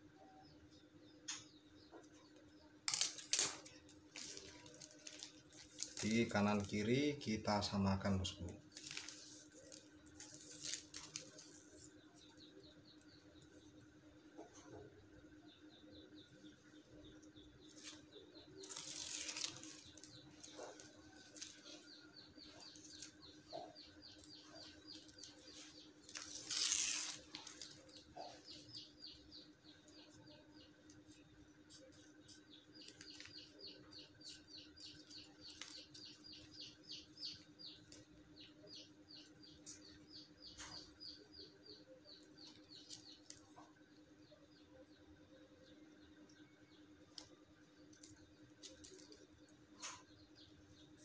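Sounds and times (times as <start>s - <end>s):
plastic rustling: 3.0s - 7.0s, 8.6s - 11.9s, 17.7s - 21.8s, 24.1s - 28.9s, 47.9s - 50.0s.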